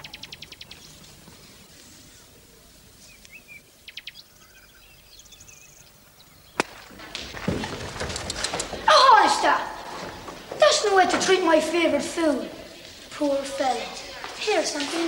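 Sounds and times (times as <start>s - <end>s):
birds chirping: 0.0s - 15.0s
hurley striking ball crack: 6.5s - 9.0s.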